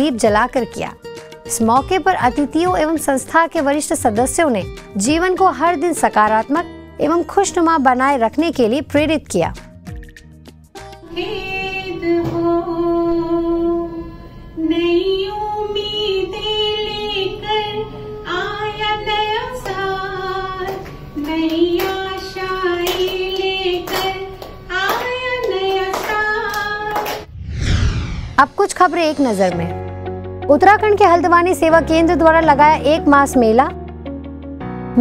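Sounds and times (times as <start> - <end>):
woman singing into a microphone: 11.0 - 27.1.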